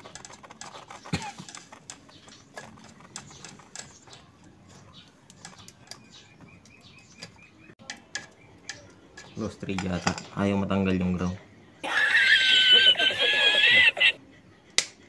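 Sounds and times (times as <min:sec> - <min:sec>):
small metal clicks and scrapes: 0:00.0 - 0:10.4.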